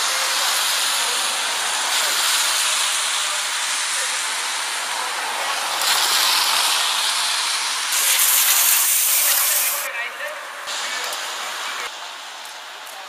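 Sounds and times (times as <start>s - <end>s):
steady rushing hiss: 0.0s - 9.9s.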